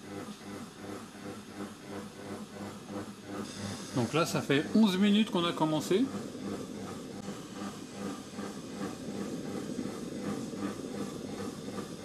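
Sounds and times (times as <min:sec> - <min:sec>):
kitchen machine running: 0:00.0 - 0:12.0
steam hissing: 0:03.4 - 0:12.0.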